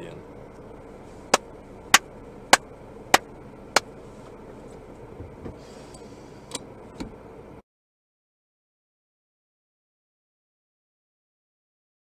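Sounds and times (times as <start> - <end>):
low cabin hum: 0.0 - 7.6.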